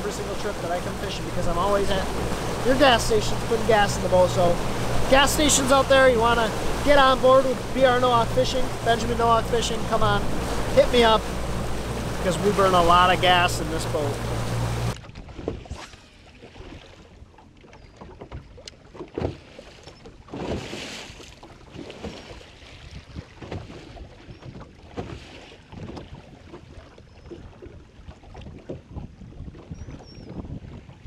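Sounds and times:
outboard motor running: 0:00.0 - 0:31.0
waves lapping against boat hull: 0:00.0 - 0:31.0
wind on microphone: 0:22.7 - 0:31.0.

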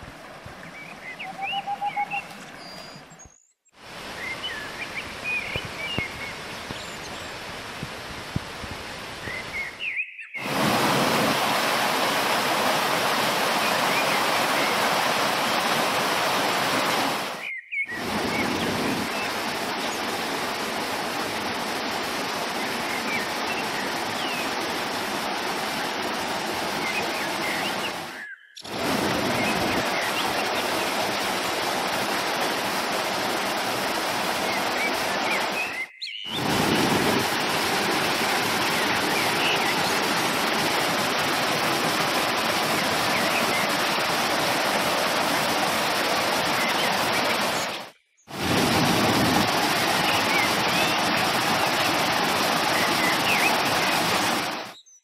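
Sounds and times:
faint bird chirps: 0:00.7 - 0:07.3
waterfall splashing over rocks: 0:03.8 - 0:09.7, 0:10.4 - 0:54.8.

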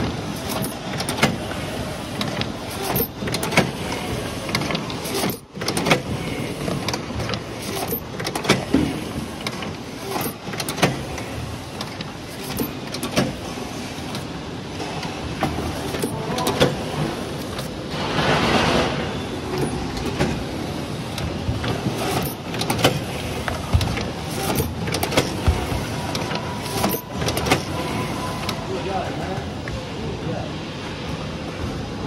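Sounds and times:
machine clicks and clacks: 0:00.0 - 0:20.5, 0:21.1 - 0:27.8.

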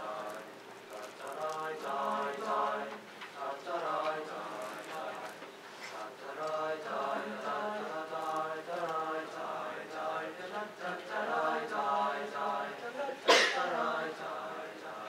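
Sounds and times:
choir singing sustained chords: 0:00.0 - 0:05.4, 0:06.0 - 0:15.0.

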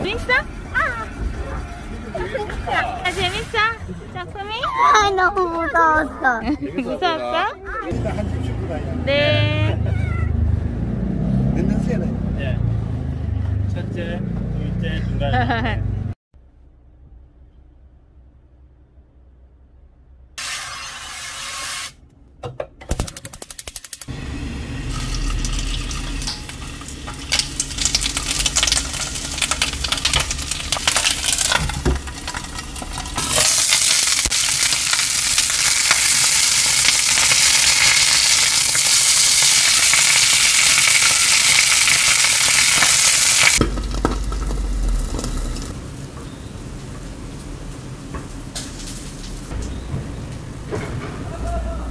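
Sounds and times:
fish frying in oil: 0:23.4 - 0:45.8.

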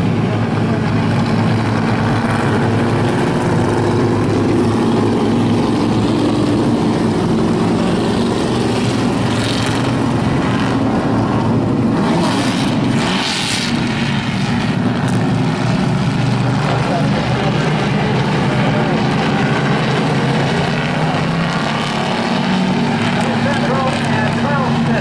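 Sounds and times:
race car engines droning: 0:00.0 - 0:25.0.

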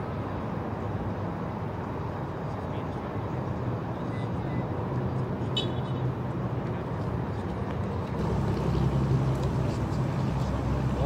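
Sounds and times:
vehicle engine idling: 0:08.2 - 0:11.0.

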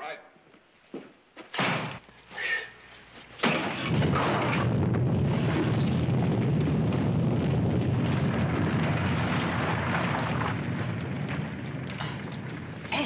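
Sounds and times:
low rumble of falling rubble: 0:03.4 - 0:13.0.

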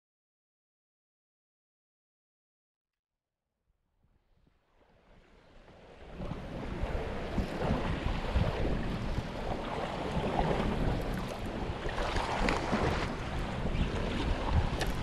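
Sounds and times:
wind buffeting microphone: 0:05.2 - 0:15.0
sea water washing: 0:05.6 - 0:15.0.

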